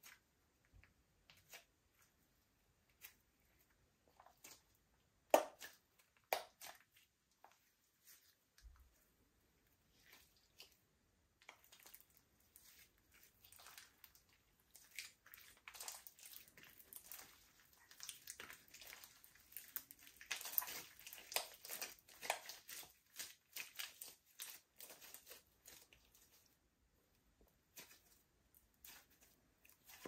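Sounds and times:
slime squished by hand: 0:02.8 - 0:08.8, 0:09.8 - 0:26.5.

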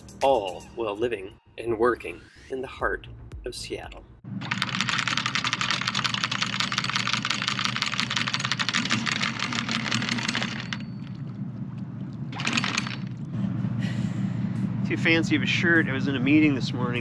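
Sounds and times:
chain links clattering over windlass: 0:08.1 - 0:11.2
low engine hum: 0:10.8 - 0:17.0.

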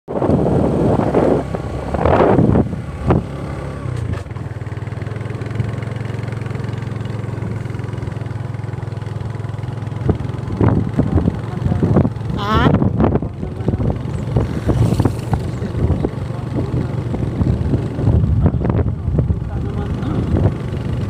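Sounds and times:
small engine idling: 0:03.3 - 0:21.0
loud rushing noise: 0:14.3 - 0:15.8.

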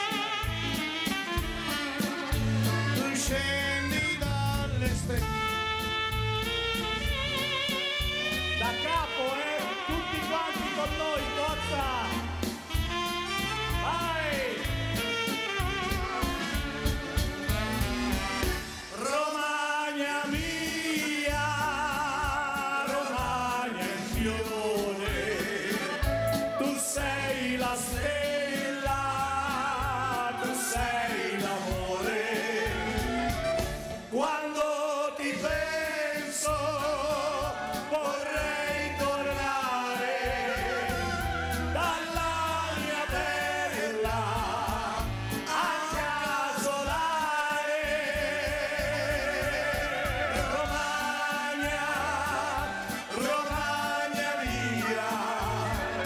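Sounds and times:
clarinet: 0:00.0 - 0:19.0, 0:25.0 - 0:27.3, 0:29.7 - 0:34.2, 0:36.8 - 0:43.4, 0:48.3 - 0:56.0
saxophone: 0:00.0 - 0:19.0, 0:20.6 - 0:34.2, 0:35.4 - 0:46.4, 0:47.0 - 0:56.0
drums with steady beat: 0:00.0 - 0:19.1, 0:20.2 - 0:34.3, 0:35.4 - 0:56.0
bass: 0:00.0 - 0:19.2, 0:20.3 - 0:34.2, 0:35.4 - 0:56.0.

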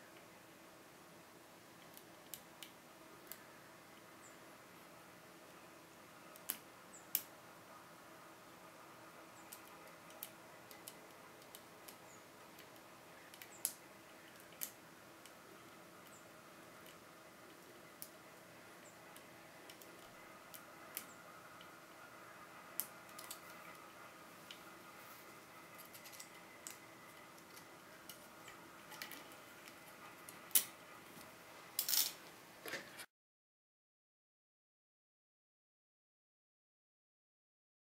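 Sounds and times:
lock picks clicking and scraping: 0:25.8 - 0:30.8, 0:31.8 - 0:32.2.

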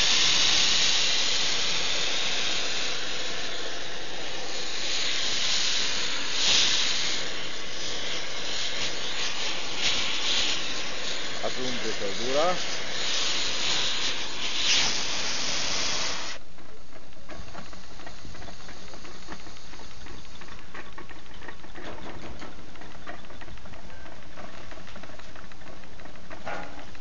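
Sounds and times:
loud hiss: 0:00.0 - 0:21.0
engine flywheel clicking: 0:16.3 - 0:27.0.

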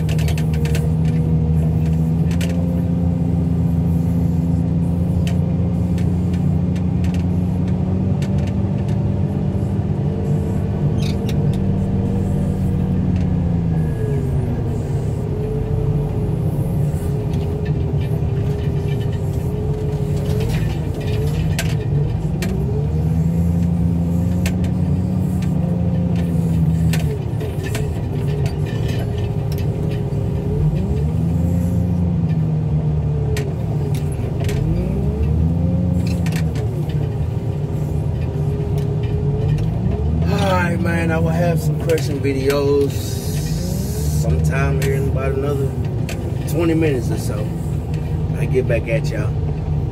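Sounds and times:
loader engine running: 0:00.0 - 0:49.9
metal clanks and rattles: 0:16.4 - 0:32.5.

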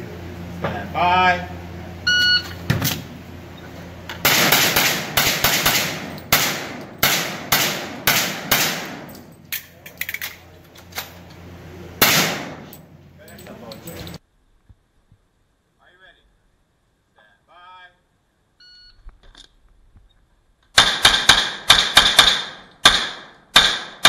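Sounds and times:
shot timer beep: 0:02.1 - 0:02.6
handgun shots echoing: 0:04.2 - 0:10.3, 0:12.0 - 0:12.8, 0:20.8 - 0:24.0.

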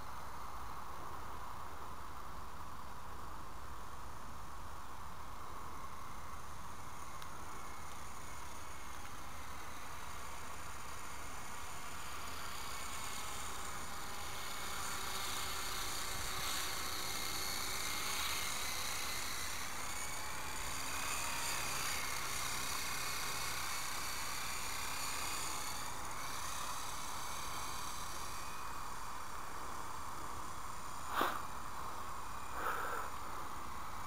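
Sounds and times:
rc helicopter rotor whine: 0:05.1 - 0:34.0
constant hiss: 0:25.9 - 0:34.0.

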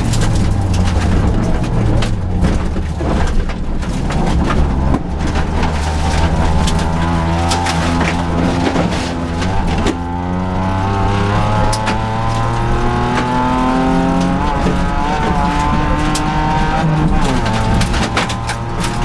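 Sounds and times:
gravel knocking against car: 0:00.0 - 0:10.5
rally car engine from inside cabin: 0:00.0 - 0:19.0.

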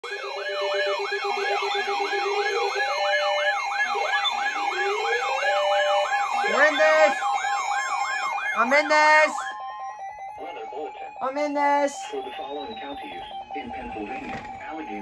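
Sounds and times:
alert tones: 0:00.0 - 0:15.0
fast beeping: 0:00.0 - 0:15.0
steady alarm tone: 0:00.0 - 0:15.0
warbling alarm siren: 0:00.0 - 0:15.0.

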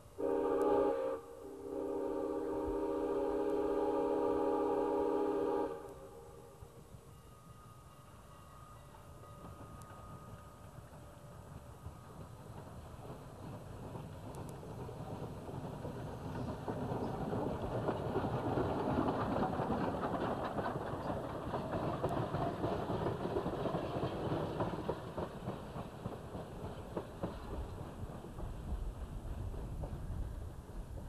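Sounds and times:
steam locomotive passing: 0:00.0 - 0:31.0
wheels clicking on rails: 0:08.8 - 0:31.0.

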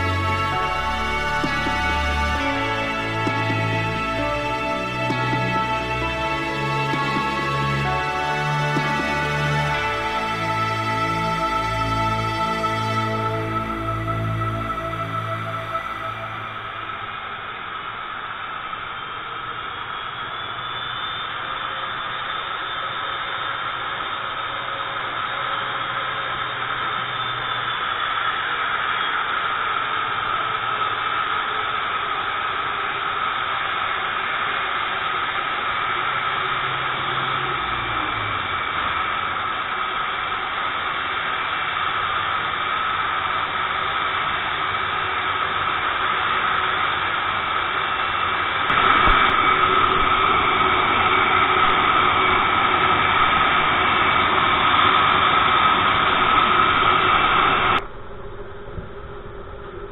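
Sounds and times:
low hum: 0:00.0 - 0:20.0, 0:48.7 - 0:59.9
jet engines whining: 0:00.0 - 0:23.6, 0:48.7 - 0:59.9.

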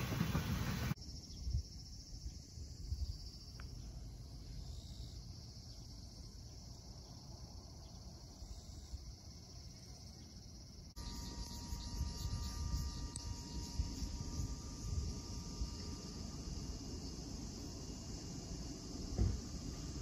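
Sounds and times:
low wind rumble: 0:00.0 - 0:04.7, 0:11.0 - 0:20.0
faint steady hum: 0:00.0 - 0:20.0.

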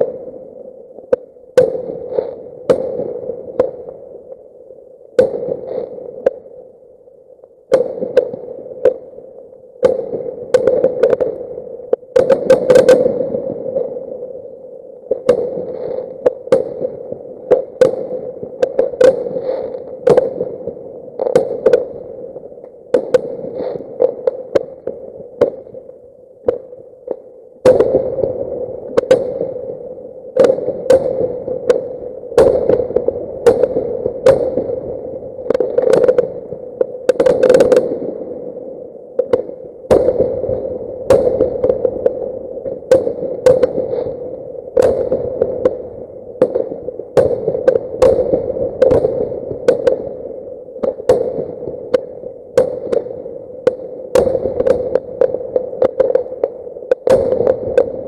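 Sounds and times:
steady hum: 0:00.0 - 0:58.0
fireworks bangs: 0:12.1 - 0:13.3, 0:15.2 - 0:20.5, 0:27.6 - 0:28.4, 0:30.4 - 0:34.8, 0:37.1 - 0:38.0, 0:39.3 - 0:41.9, 0:42.8 - 0:44.2, 0:46.4 - 0:50.1, 0:53.7 - 0:58.0.

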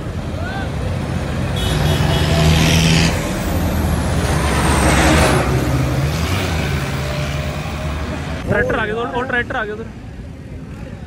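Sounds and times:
tractor engines driving past: 0:00.0 - 0:11.0.

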